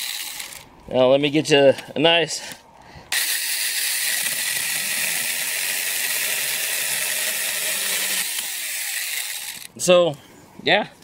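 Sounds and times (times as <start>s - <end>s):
chainsaw cutting branch: 0.0s - 0.6s, 3.1s - 9.7s.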